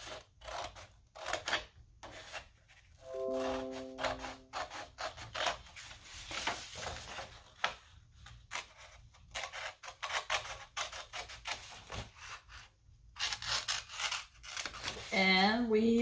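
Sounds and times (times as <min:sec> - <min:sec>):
scissors cutting paper: 0:00.0 - 0:02.7, 0:08.5 - 0:15.1.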